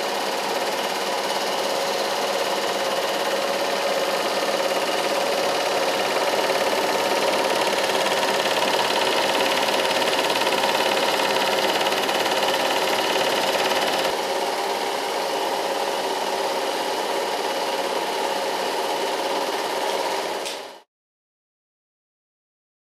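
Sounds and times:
film projectors whirring: 0:00.2 - 0:16.3.

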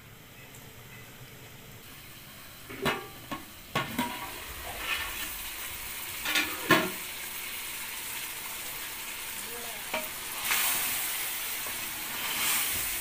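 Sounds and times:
chicken sizzling: 0:00.0 - 0:13.0
metal lid clanking: 0:02.7 - 0:04.4, 0:06.2 - 0:07.0.

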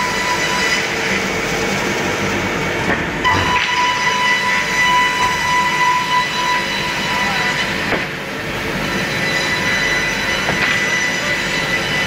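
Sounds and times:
saw machine whining: 0:03.3 - 0:12.0.

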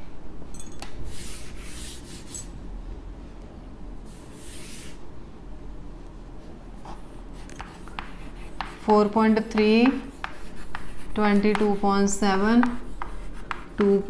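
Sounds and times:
duster rubbing on blackboard: 0:01.1 - 0:02.4, 0:04.1 - 0:05.0, 0:06.9 - 0:14.0.

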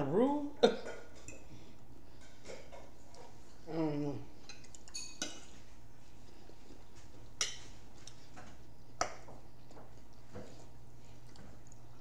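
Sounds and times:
low steady hum: 0:00.0 - 0:12.0
cutlery clinking on plates: 0:04.5 - 0:05.6.

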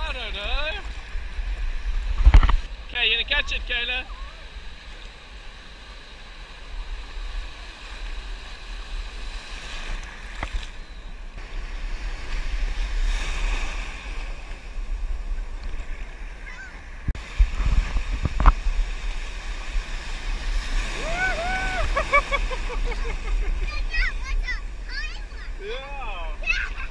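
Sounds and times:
ocean surf breaking: 0:00.0 - 0:26.9
wind on microphone: 0:00.0 - 0:26.9
water splashes: 0:15.4 - 0:26.9.

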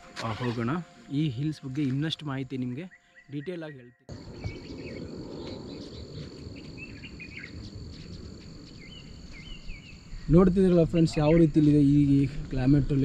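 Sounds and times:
bird chirps: 0:02.8 - 0:10.4
low rumble: 0:04.1 - 0:11.0
insect drone: 0:04.1 - 0:11.2.

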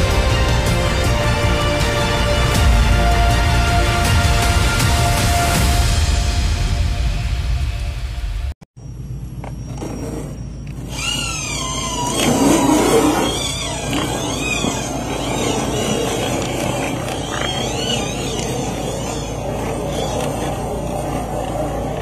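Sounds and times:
tires grinding over gravel: 0:09.6 - 0:22.0
electric motor whining: 0:10.6 - 0:22.0.

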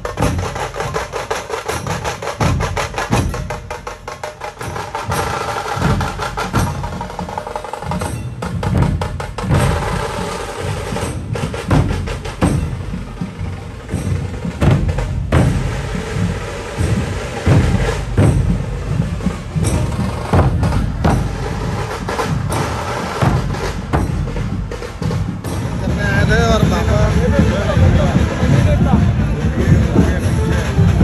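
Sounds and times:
deep booming drum beats: 0:00.0 - 0:31.0
sharp rattling drum strikes: 0:00.0 - 0:31.0
crowd: 0:04.5 - 0:31.0.

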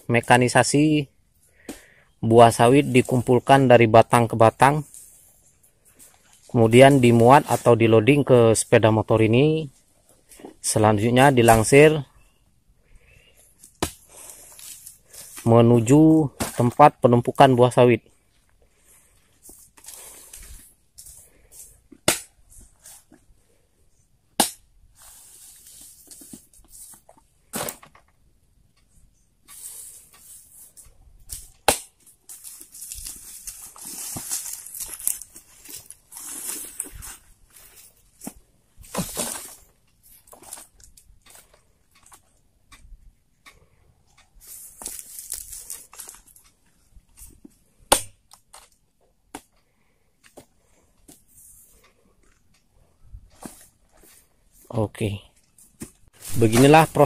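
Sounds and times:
fruit bunches rustling and crackling: 0:00.2 - 0:12.1, 0:13.0 - 0:23.7, 0:29.4 - 0:42.8, 0:43.4 - 0:49.2, 0:50.3 - 0:57.0
rustling: 0:29.5 - 0:42.4, 0:44.3 - 0:47.8, 0:50.4 - 0:57.0.

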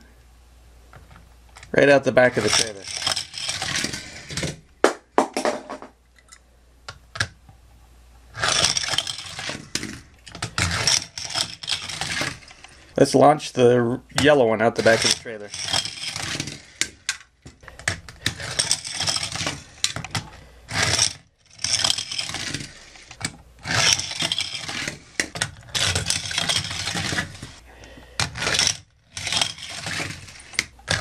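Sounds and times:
toy cars clicking on plastic: 0:01.6 - 0:04.6, 0:08.4 - 0:12.9, 0:14.2 - 0:27.6, 0:28.2 - 0:31.0
toy cars rattling down ramps: 0:01.6 - 0:04.6, 0:08.3 - 0:13.0, 0:14.2 - 0:27.6, 0:28.2 - 0:31.0.

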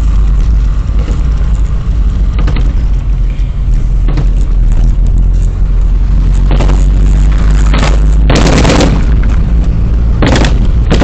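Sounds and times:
car driving rumble: 0:00.0 - 0:11.0
automatic gunfire bursts: 0:07.8 - 0:09.1.

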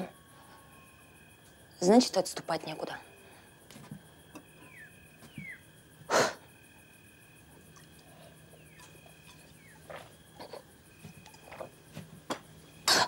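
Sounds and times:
faint falling chirps: 0:04.4 - 0:05.7.

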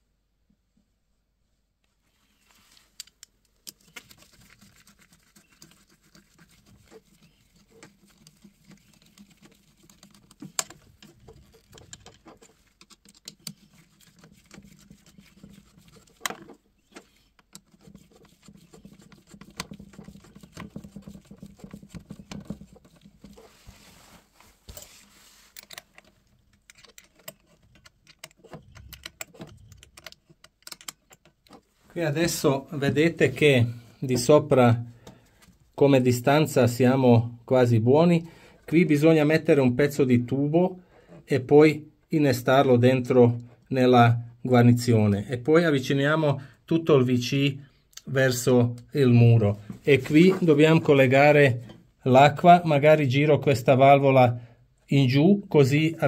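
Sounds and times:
handling noise: 0:02.6 - 0:33.5
screwdriver turning clamp screw: 0:05.7 - 0:20.7, 0:25.6 - 0:31.6.

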